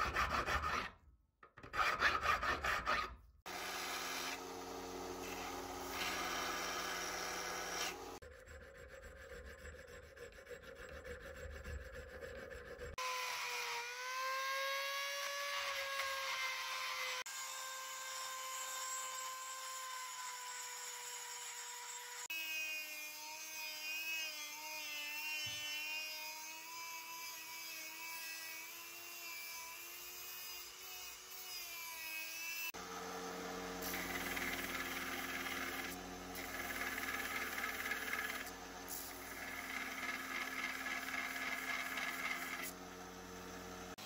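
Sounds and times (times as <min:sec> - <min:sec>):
belt sander running: 0:03.5 - 0:08.2, 0:32.8 - 0:44.0
rotary tool sanding whine: 0:03.5 - 0:14.0, 0:32.7 - 0:44.0
metal grinding on sander belt: 0:33.8 - 0:42.8.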